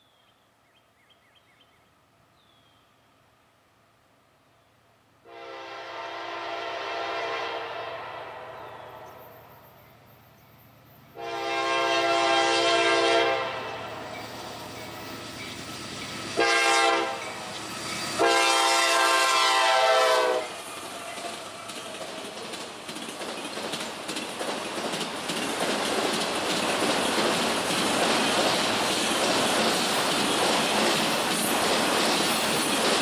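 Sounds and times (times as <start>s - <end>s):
locomotive air horn blasts: 5.2s - 8.8s, 11.2s - 14.0s, 16.4s - 17.3s, 18.2s - 20.6s
train rumbling: 5.5s - 33.0s.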